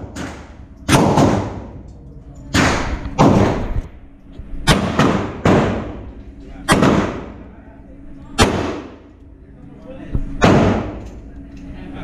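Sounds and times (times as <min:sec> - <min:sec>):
gunshots with echo: 0:00.0 - 0:01.7, 0:04.7 - 0:06.0, 0:06.7 - 0:07.4, 0:08.4 - 0:09.0.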